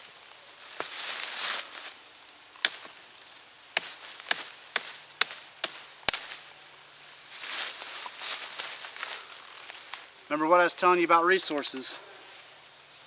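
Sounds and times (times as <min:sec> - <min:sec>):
dry leaves rustling: 0:00.0 - 0:10.2
knife chopping forest floor: 0:02.6 - 0:03.0, 0:03.8 - 0:06.5.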